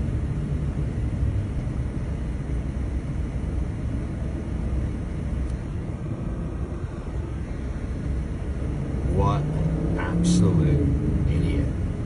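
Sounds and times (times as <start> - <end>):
car engine idling rumble: 0.0 - 12.0.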